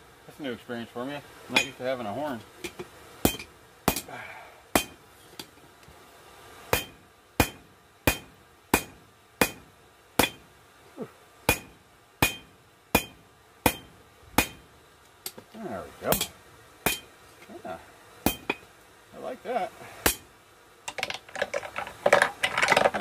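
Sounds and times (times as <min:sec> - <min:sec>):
hammer striking hot steel on anvil: 0:01.5 - 0:01.8, 0:02.7 - 0:04.1, 0:04.7 - 0:05.0, 0:06.7 - 0:10.5, 0:11.5 - 0:14.7, 0:16.1 - 0:17.1, 0:18.2 - 0:18.7, 0:20.0 - 0:20.3.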